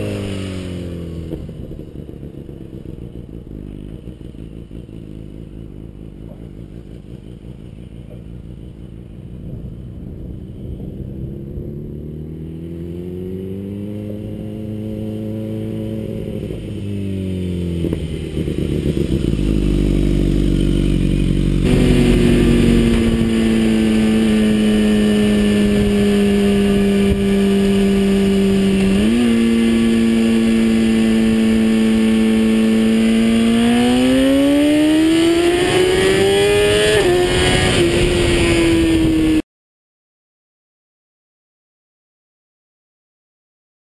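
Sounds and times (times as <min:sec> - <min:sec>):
motorcycle engine passing: 0:00.0 - 0:39.4
wind rush: 0:21.6 - 0:29.6.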